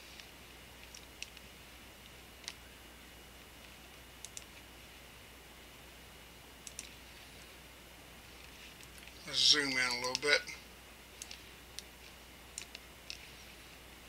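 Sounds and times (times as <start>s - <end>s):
faint steady hum: 0.0s - 14.0s
computer mouse clicking: 0.2s - 2.6s, 3.6s - 4.7s, 6.6s - 7.0s, 11.2s - 13.3s.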